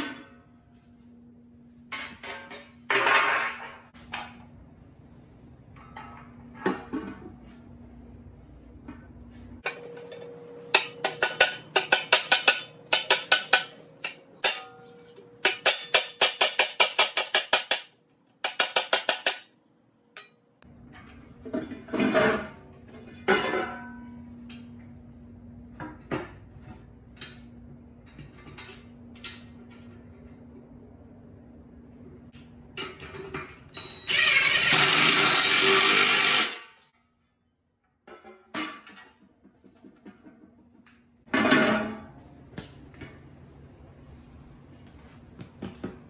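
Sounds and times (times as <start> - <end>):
hammer striking metal: 9.7 - 19.5.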